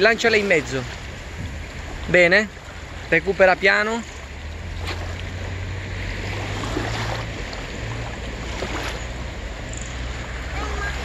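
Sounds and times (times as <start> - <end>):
wind rumble on microphone: 0.0 - 3.2
water lapping at shoreline: 0.0 - 11.0.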